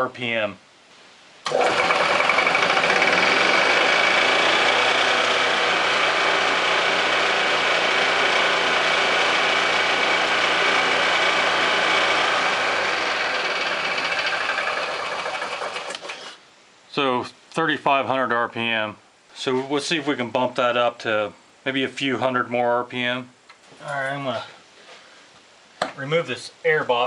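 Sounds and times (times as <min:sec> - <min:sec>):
golf cart engine running: 0:01.5 - 0:16.1
drive clutch and belt spinning: 0:01.5 - 0:16.2.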